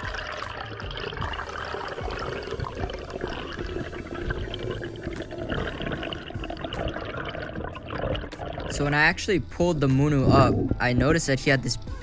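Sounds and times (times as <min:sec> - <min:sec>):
underwater rush of bubbles: 0:00.0 - 0:08.8.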